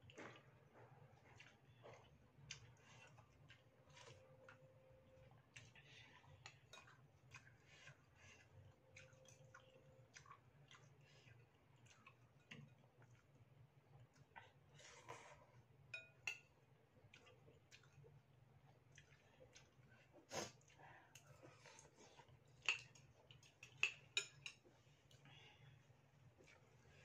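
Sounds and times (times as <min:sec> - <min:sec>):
low steady hum: 0:00.0 - 0:27.0
soft chewing and mouth noises: 0:00.0 - 0:27.0
metal spoon clinking ceramic bowl: 0:15.9 - 0:16.5.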